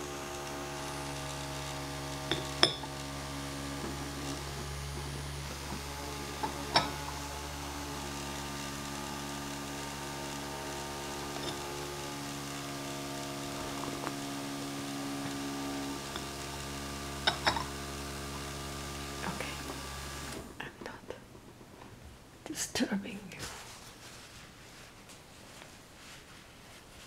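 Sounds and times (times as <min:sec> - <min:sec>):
handheld fan motor humming: 0:00.0 - 0:20.5
teacup clinking on saucer: 0:02.3 - 0:02.8, 0:06.7 - 0:07.0.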